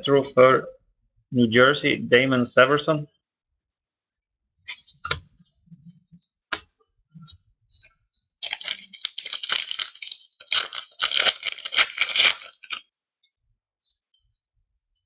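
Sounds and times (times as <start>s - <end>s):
wrapper crinkling and tearing: 8.4s - 12.8s.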